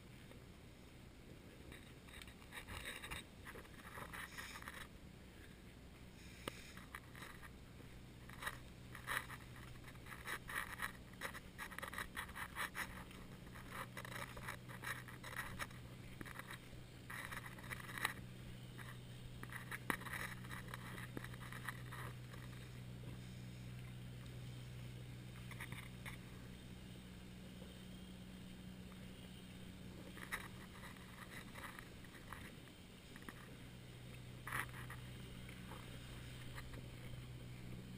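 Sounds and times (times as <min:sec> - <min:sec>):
faint low hum: 0:00.0 - 0:37.9
camera scraping and rubbing: 0:01.7 - 0:04.9, 0:06.5 - 0:07.5, 0:08.2 - 0:22.7, 0:25.4 - 0:26.2, 0:30.0 - 0:33.5, 0:34.4 - 0:37.2.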